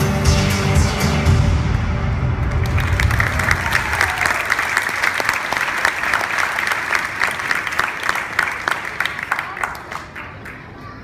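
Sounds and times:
show music: 0.0s - 5.7s
audience applauding: 2.5s - 10.8s.

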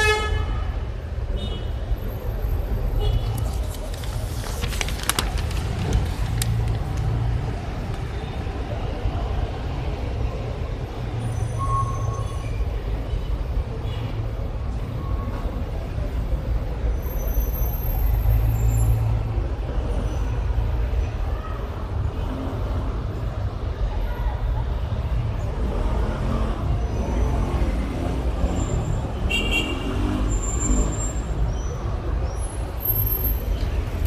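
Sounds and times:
newspaper rustling: 3.1s - 7.3s.

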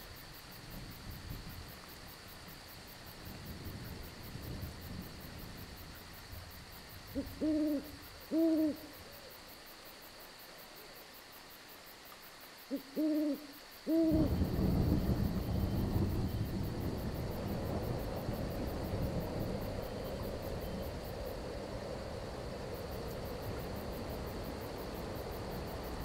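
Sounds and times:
crickets chirping: 0.0s - 26.0s
thunder rumbling: 3.1s - 6.5s, 14.0s - 26.0s
owl hooting: 7.1s - 9.3s, 12.7s - 14.4s.

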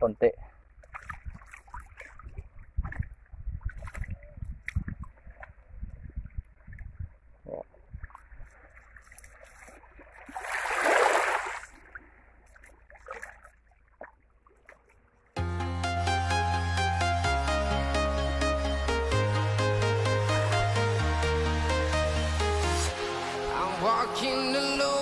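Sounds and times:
wind buffeting microphone: 0.8s - 8.7s.

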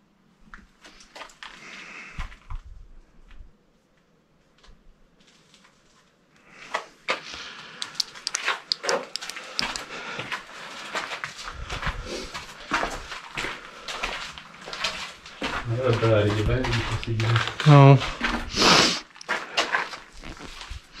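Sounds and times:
footsteps crunching on gravel: 8.0s - 21.0s.

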